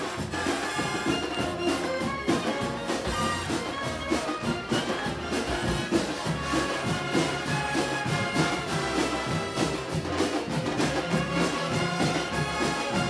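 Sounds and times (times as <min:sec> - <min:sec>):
bass drum beat: 0:00.0 - 0:13.0
brass band playing: 0:00.0 - 0:13.0.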